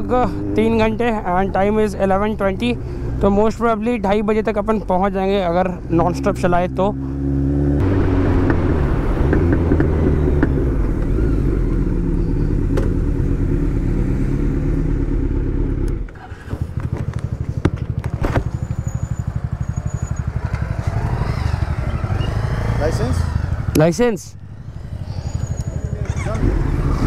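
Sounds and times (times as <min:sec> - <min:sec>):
motorcycle engine revving and idling: 0:00.0 - 0:27.0.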